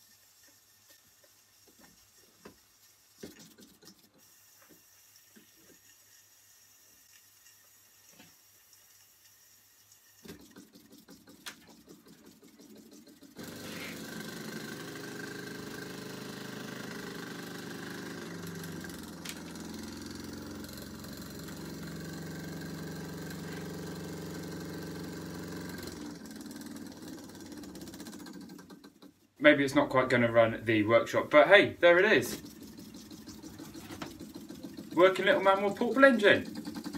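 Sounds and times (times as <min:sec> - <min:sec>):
model steam engine running: 0:00.0 - 0:30.4, 0:31.0 - 0:36.9.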